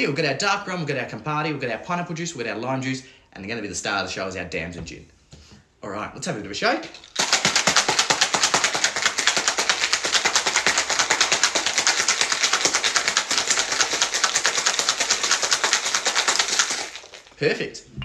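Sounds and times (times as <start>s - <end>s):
ice rattling in cocktail shaker: 6.8s - 17.4s.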